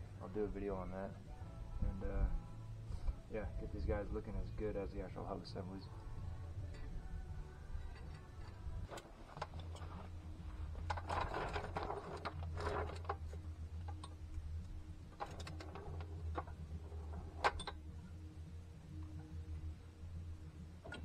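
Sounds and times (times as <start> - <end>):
steady low hum: 0.0 - 21.0
metal brake parts clinking: 17.4 - 17.8.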